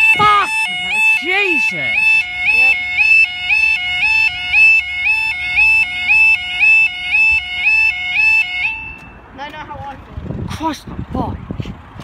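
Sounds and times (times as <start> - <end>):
level crossing two-tone alarm: 0.0 - 9.1.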